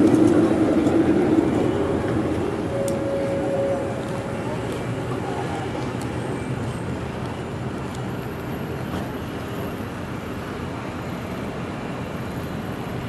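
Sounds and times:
city street traffic: 0:00.0 - 0:13.0
tram running: 0:00.0 - 0:13.0.

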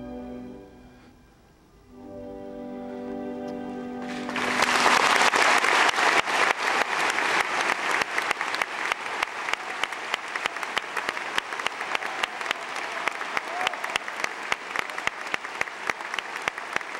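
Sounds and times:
orchestra chord: 0:00.0 - 0:05.0
audience applauding: 0:04.0 - 0:16.9.

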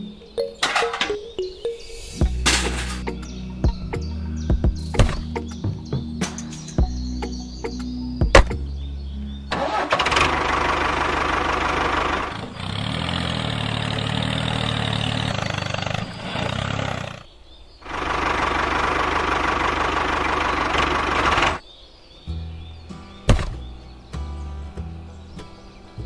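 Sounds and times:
tractor engine running: 0:02.2 - 0:08.8, 0:09.5 - 0:17.2, 0:17.8 - 0:21.6.

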